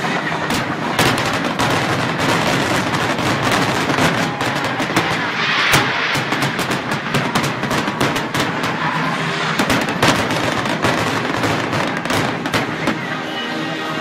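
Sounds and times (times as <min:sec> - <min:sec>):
heavy fireworks bangs: 0:00.0 - 0:13.6
fireworks bangs and crackles: 0:00.0 - 0:14.0.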